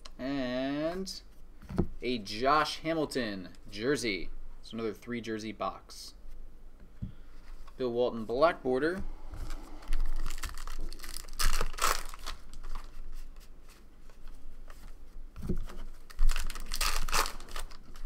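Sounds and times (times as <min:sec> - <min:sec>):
cards rustling and sliding: 0:09.3 - 0:18.0
foil wrapper tearing and crinkling: 0:10.1 - 0:12.9, 0:16.0 - 0:18.0.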